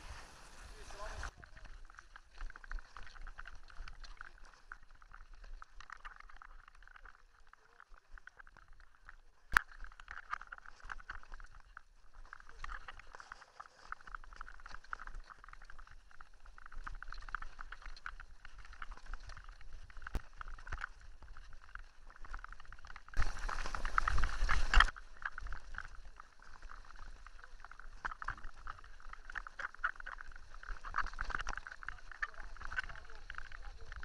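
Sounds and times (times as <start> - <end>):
bike tyres crunching on gravel: 0.0 - 4.4, 12.5 - 34.0.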